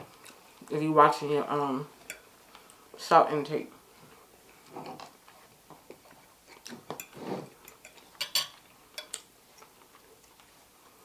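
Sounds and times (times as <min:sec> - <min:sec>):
soft eating sounds: 0:00.0 - 0:11.0
fork clinking on plate: 0:06.9 - 0:09.2.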